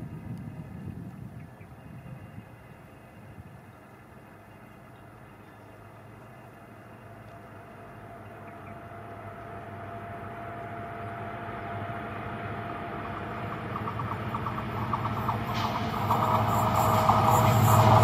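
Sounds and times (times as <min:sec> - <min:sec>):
diesel locomotive engine rumble: 0:00.0 - 0:18.0
wheels rattling on rail: 0:03.6 - 0:18.0.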